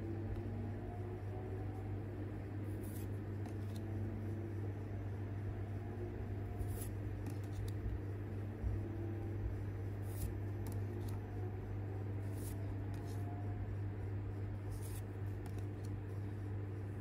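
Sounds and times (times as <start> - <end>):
low hum: 0.0 - 17.0
cards swishing: 14.7 - 16.0.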